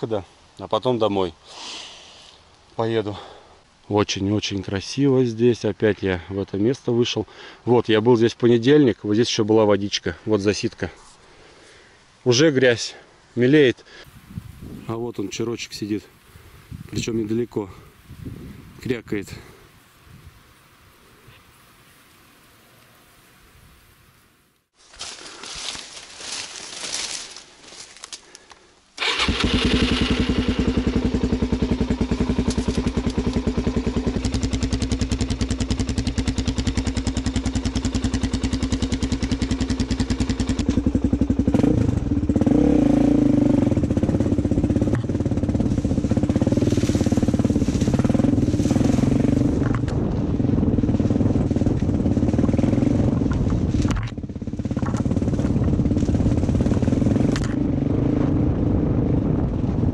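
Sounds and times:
dirt bike engine: 0:29.0 - 0:59.9.

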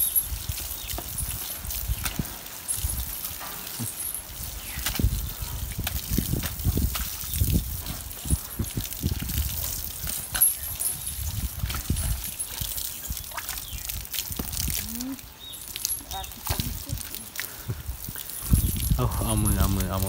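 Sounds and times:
hose water splashing: 0:00.0 - 0:20.0
wet slaps and squelches in mud: 0:04.8 - 0:07.8.

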